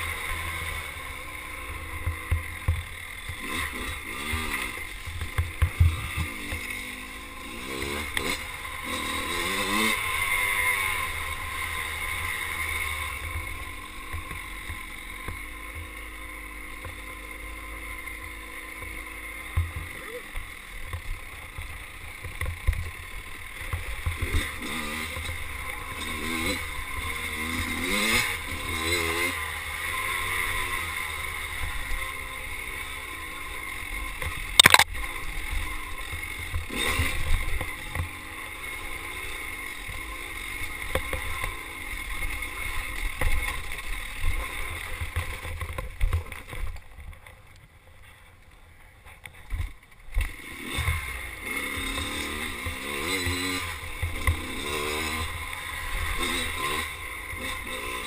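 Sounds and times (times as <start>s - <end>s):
dirt bike engine revving: 0.0s - 46.7s, 50.1s - 58.0s
bike knocks and rattles: 43.0s - 48.2s.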